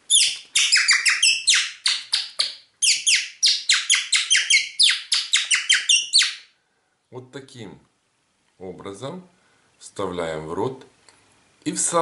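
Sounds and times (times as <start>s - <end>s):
high-pitched whistle chirps: 0.1s - 6.5s.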